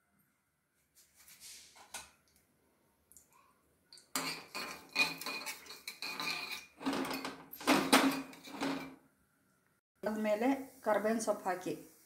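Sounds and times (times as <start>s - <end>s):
metal spoon scraping a pan: 4.2s - 9.0s.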